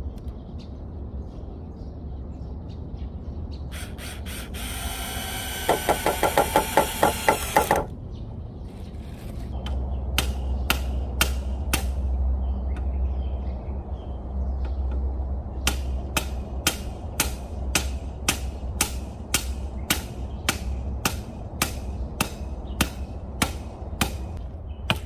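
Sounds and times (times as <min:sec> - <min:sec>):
cordless drill whining: 0:03.7 - 0:07.9.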